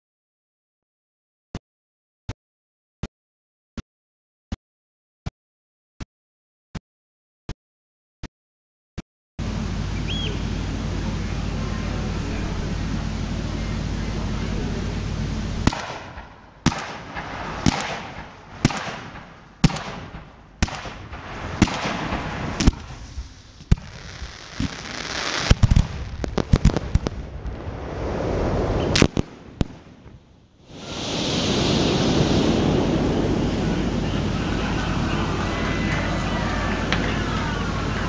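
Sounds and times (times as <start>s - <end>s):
crackling firework reports: 9.5s - 38.0s
firework hiss: 10.3s - 30.0s, 30.6s - 35.4s
firework launch bangs: 15.6s - 33.4s.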